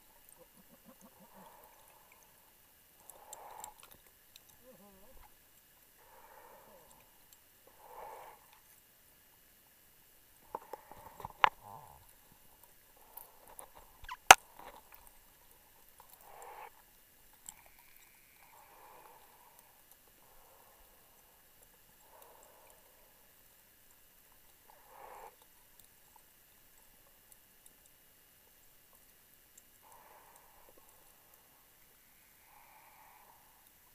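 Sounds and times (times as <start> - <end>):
muffled diver breathing: 29.8 - 33.9.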